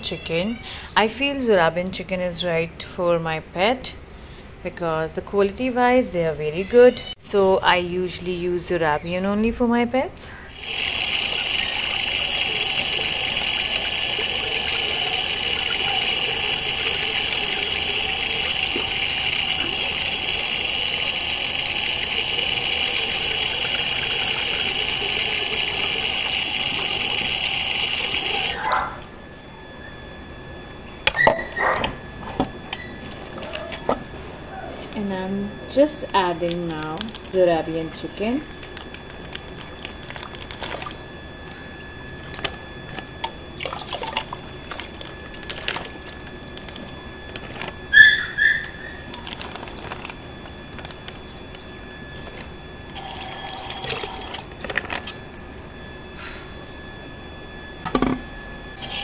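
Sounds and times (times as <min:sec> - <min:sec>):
tap water running into a sink: 0:10.5 - 0:28.6, 0:42.1 - 0:46.7, 0:53.0 - 0:54.6
plastic crinkling: 0:32.7 - 0:34.1, 0:36.1 - 0:55.2
water splashing on plastic packet: 0:38.5 - 0:41.1, 0:42.0 - 0:48.0, 0:48.7 - 0:51.6
short high squeaks: 0:47.9 - 0:49.2.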